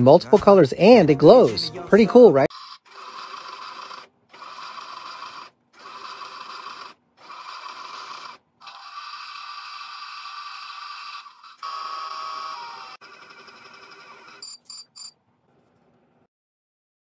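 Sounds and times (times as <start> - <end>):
toy motor whirring: 2.5 - 15.1.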